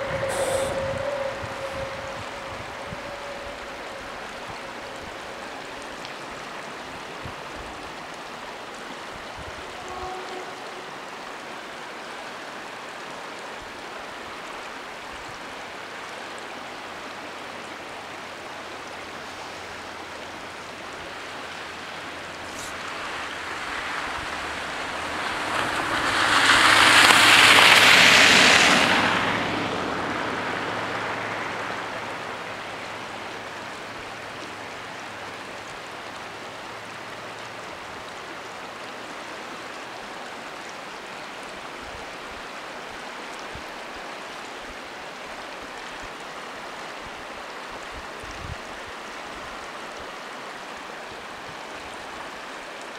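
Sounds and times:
vehicle driving past: 0:00.0 - 0:06.0, 0:22.4 - 0:33.2
low engine drone: 0:00.0 - 0:06.7
stream rushing: 0:00.0 - 0:52.9.

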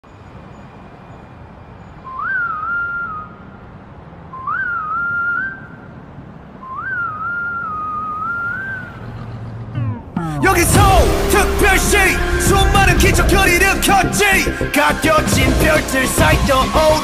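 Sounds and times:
whistled tune: 0:01.9 - 0:03.6, 0:04.3 - 0:05.9, 0:06.6 - 0:09.1, 0:10.5 - 0:17.0
low sustained bass: 0:09.9 - 0:16.0.

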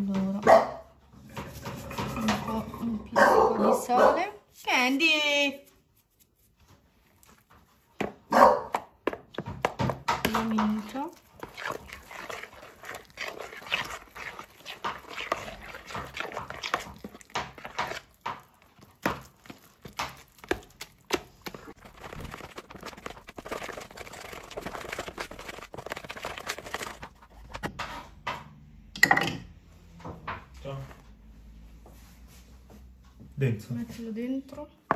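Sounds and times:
fork scraping bowl: 0:01.2 - 0:03.0, 0:10.1 - 0:28.2
fork mashing wet mix: 0:01.2 - 0:04.9, 0:05.7 - 0:28.4.

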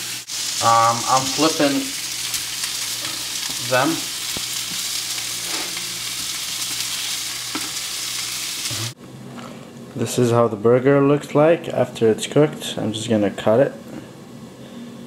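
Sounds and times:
meat patties sizzling in a pan: 0:00.0 - 0:09.0.

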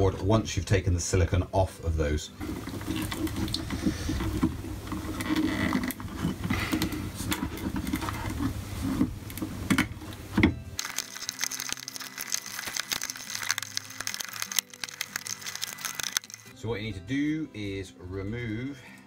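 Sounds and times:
background music: 0:09.7 - 0:19.0
hands handling wires and connectors: 0:10.8 - 0:16.5.

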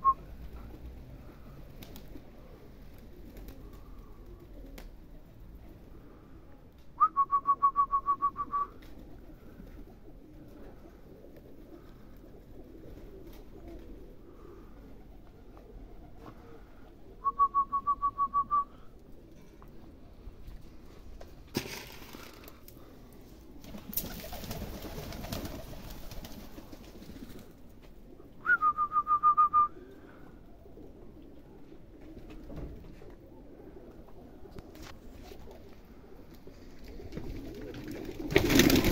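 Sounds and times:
pigeons cooing faintly: 0:00.0 - 0:38.9
short whistled notes: 0:07.0 - 0:08.7, 0:17.2 - 0:18.7, 0:28.4 - 0:29.7.

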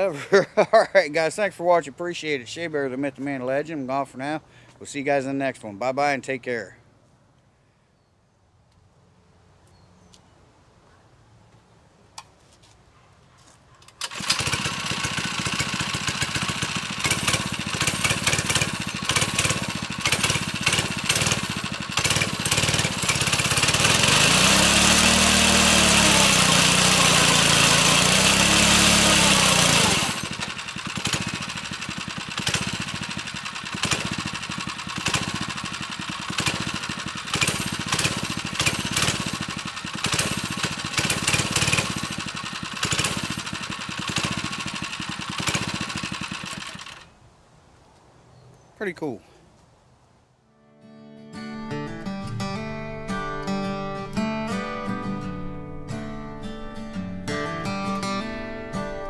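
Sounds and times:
mini bike engine pull-started: 0:13.8 - 0:47.1
small engine idling and revving: 0:13.8 - 0:47.1.

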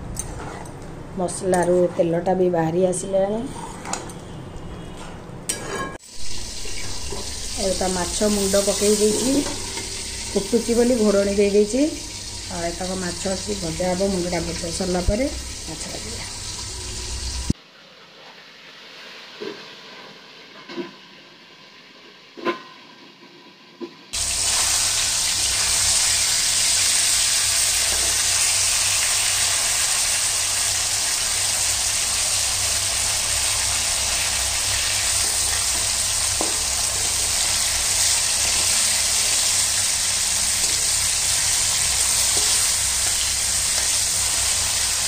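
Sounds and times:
steel spatula stirring: 0:00.1 - 0:02.3
fish sizzling in hot oil: 0:06.0 - 0:17.6, 0:24.2 - 0:45.0.

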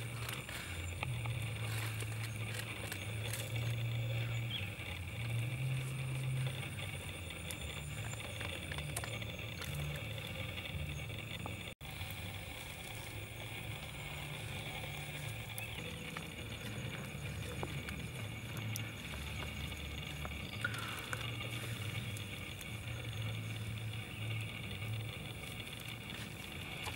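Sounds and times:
high-pitched hum: 0:00.0 - 0:26.9
low rumble: 0:00.0 - 0:26.9.

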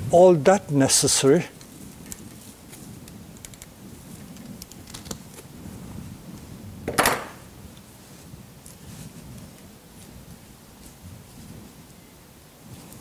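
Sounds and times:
wire clicking and scraping on bark: 0:01.5 - 0:05.5.

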